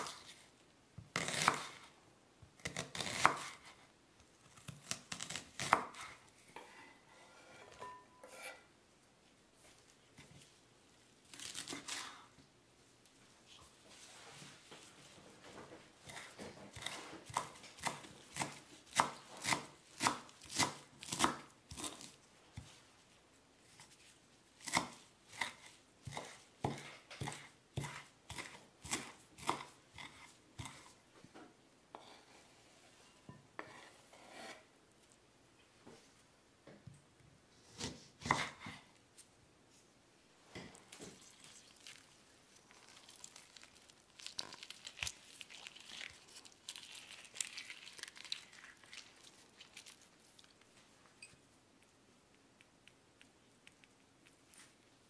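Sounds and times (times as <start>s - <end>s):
knife chopping on wooden board: 1.1s - 1.8s, 2.6s - 3.7s, 24.6s - 30.9s, 37.8s - 38.8s.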